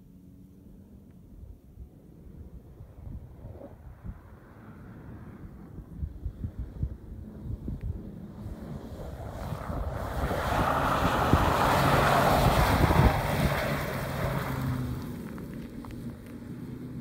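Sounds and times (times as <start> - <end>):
wind rumbling on microphone: 1.2 - 17.0
tyres spinning on snow: 8.2 - 17.0.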